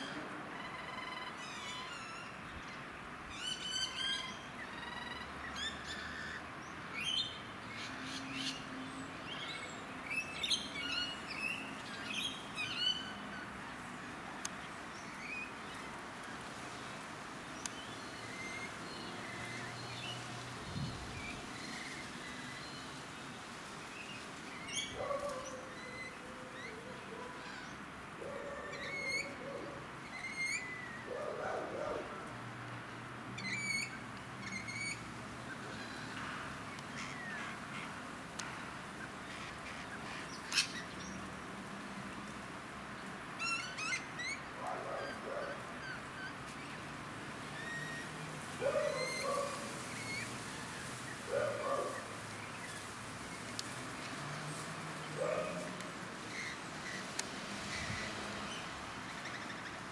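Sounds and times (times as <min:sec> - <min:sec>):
lower coarse bird calls: 0:24.0 - 0:32.1, 0:47.5 - 0:59.9.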